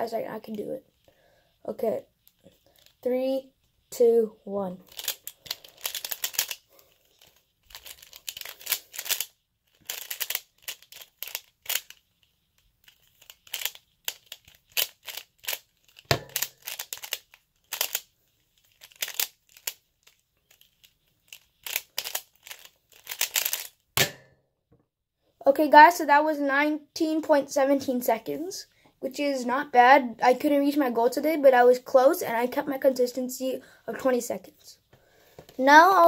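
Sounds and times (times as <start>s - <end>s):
plastic puzzle clicking and rattling: 4.8s - 23.8s.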